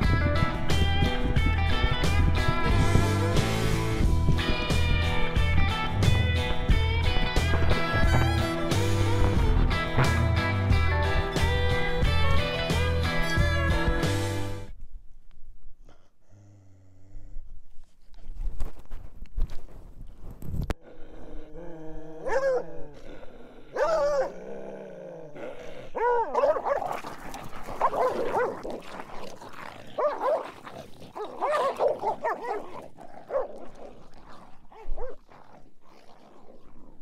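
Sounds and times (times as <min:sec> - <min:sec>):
hound dog calling: 0:27.5 - 0:28.7, 0:30.0 - 0:35.2.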